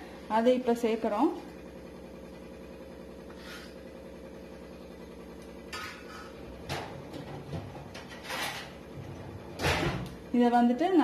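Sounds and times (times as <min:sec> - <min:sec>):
steady low hum: 0:00.0 - 0:11.0
kitchen utensils scraping and knocking: 0:07.2 - 0:08.8.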